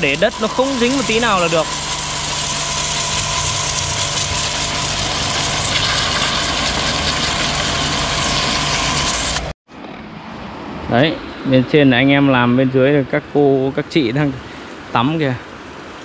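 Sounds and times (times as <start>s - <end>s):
pressure washer running: 0.0s - 9.6s.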